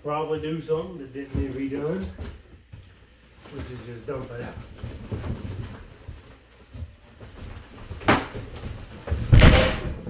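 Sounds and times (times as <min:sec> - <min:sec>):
heavy thud: 0:09.2 - 0:10.0.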